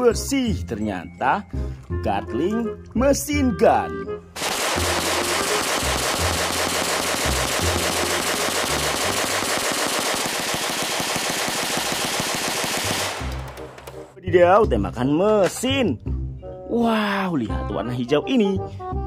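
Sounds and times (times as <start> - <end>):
minigun firing rapid burst: 4.4 - 13.8.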